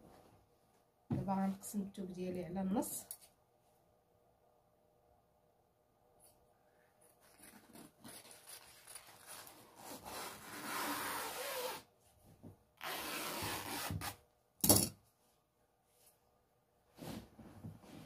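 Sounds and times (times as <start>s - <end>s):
fabric shears cutting cloth: 12.8s - 14.2s.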